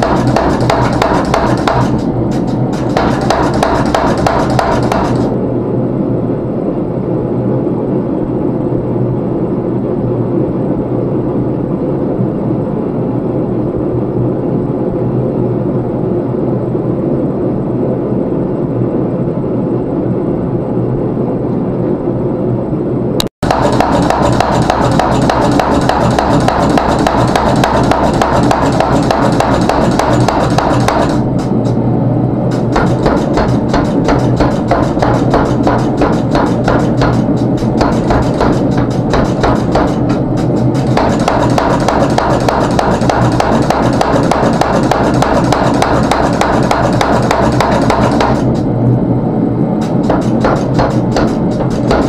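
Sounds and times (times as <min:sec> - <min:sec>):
power hammer pounding metal: 0:00.0 - 0:05.4, 0:23.4 - 0:31.8, 0:32.5 - 0:48.7, 0:49.8 - 0:52.0
steady motor hum: 0:00.0 - 0:10.2, 0:22.6 - 0:52.0.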